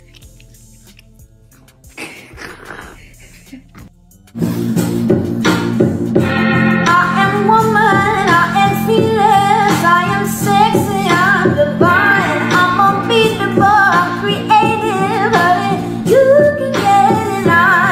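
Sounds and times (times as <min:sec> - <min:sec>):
person singing: 0:06.6 - 0:17.9.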